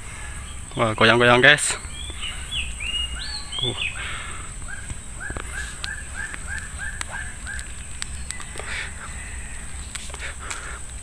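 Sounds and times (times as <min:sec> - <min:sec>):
faint clicks: 0:04.8 - 0:08.8.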